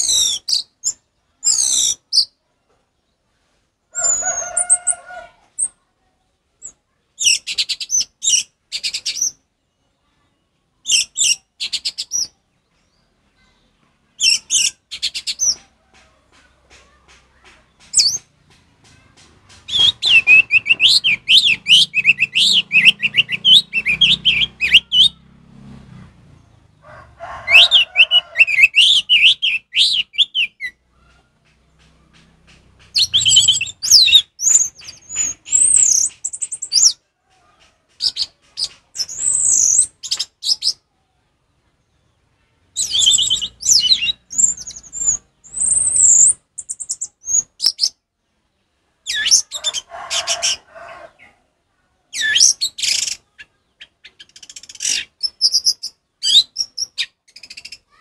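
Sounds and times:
thrush singing: 17.8 - 35.8.

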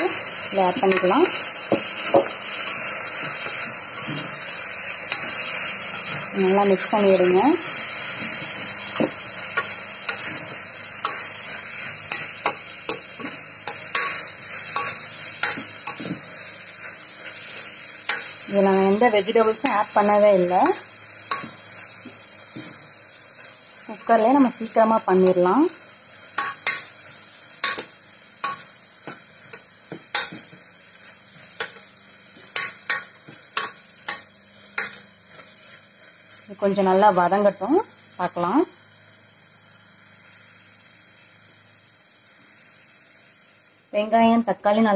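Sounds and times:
vegetables sizzling: 0.0 - 44.9.

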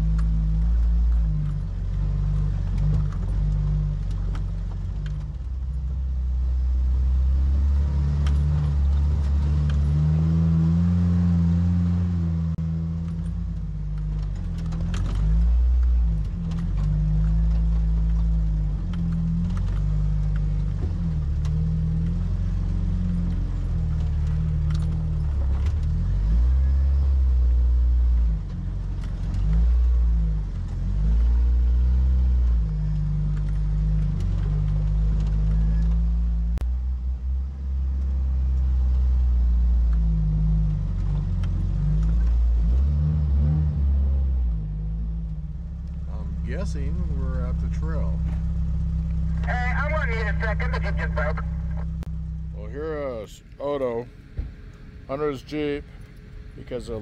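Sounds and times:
off-road vehicle engine revving: 0.0 - 57.0
body knocking and rattling: 13.0 - 21.7.

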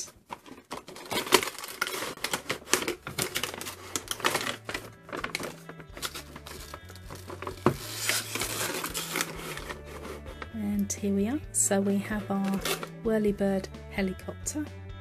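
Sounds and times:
packaging and metal toys rattling: 0.0 - 10.4
cardboard box opening: 0.0 - 10.5, 12.4 - 12.9
background music with bass: 3.0 - 15.0.

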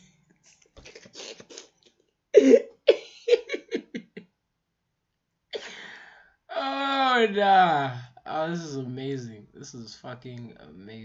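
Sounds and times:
man laughing into his hand: 2.4 - 4.2
breathy gasp: 5.6 - 6.4.

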